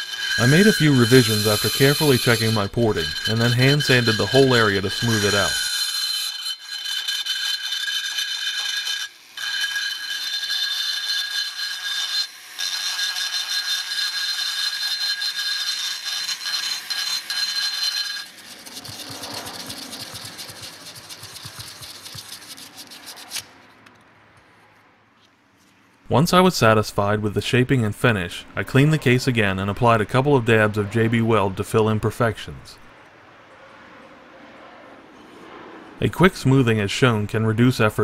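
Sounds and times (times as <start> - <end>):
sandpaper rubbing on metal: 0.0 - 23.5
rotary tool grinding metal: 0.0 - 23.6.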